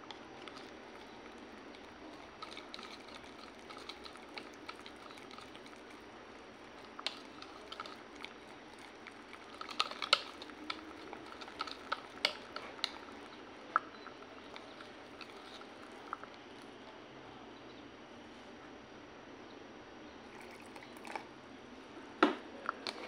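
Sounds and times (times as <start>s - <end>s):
whisk squelching in batter: 0.0s - 16.4s
whisk clicking against jug: 0.1s - 13.4s.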